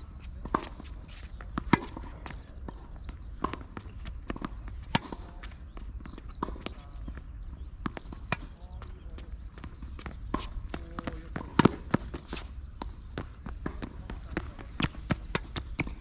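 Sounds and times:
tennis ball bouncing on court: 0.3 - 16.0
tennis ball struck by rackets: 1.5 - 2.8, 3.4 - 5.6, 10.0 - 16.0.

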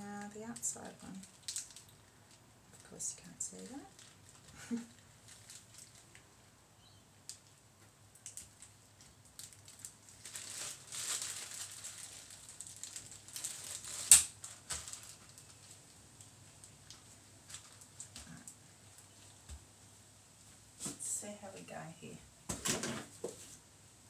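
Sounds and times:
plastic piping bag crinkling: 0.0 - 6.4, 7.3 - 19.6.

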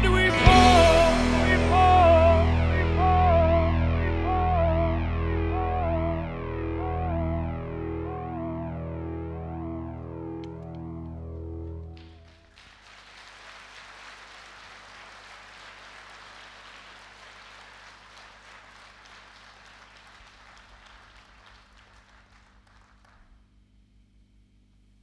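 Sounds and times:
audience applauding: 11.8 - 23.4.

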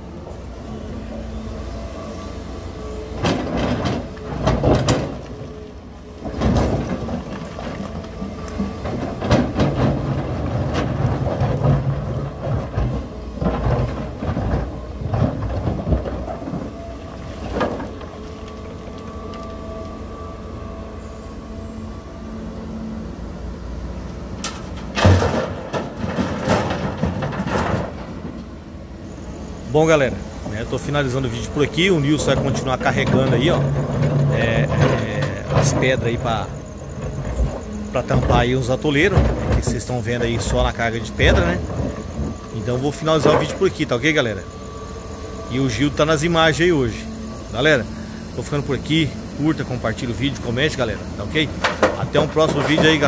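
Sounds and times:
excavator diesel engine running: 0.0 - 53.0
steel bucket scraping rock: 31.3 - 44.6, 45.5 - 53.0.

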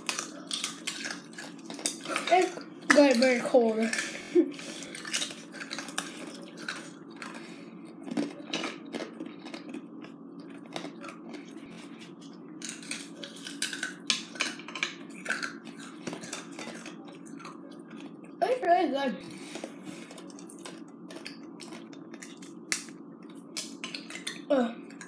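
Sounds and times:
chewing: 0.0 - 18.4, 19.3 - 25.0
steady low hum: 0.0 - 25.0.

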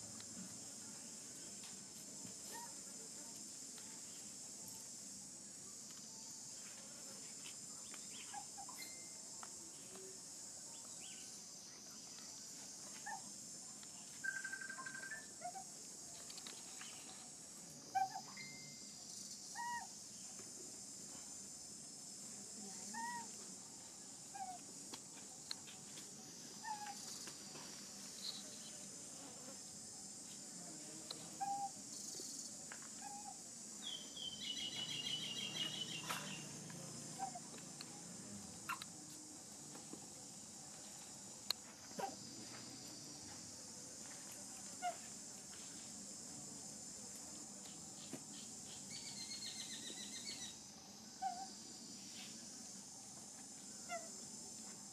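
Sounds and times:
short insect chirps: 2.4 - 20.4, 25.3 - 39.1, 44.4 - 54.9
fast insect trill: 7.9 - 9.4, 10.4 - 20.9, 26.3 - 38.9, 47.7 - 54.9
high-pitched insect drone: 8.1 - 10.2, 14.1 - 20.3, 26.3 - 29.7, 30.9 - 38.9, 47.7 - 54.4.

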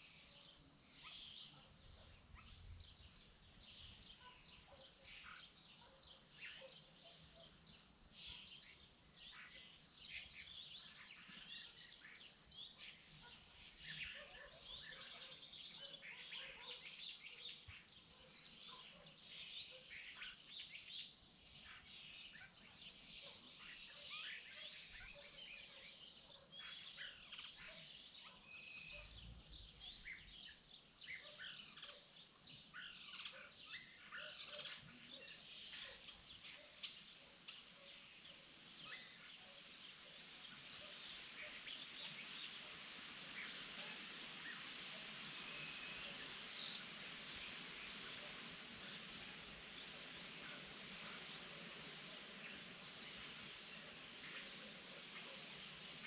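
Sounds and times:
birds chirping and calling: 32.8 - 56.0
crickets trilling: 33.8 - 56.0.

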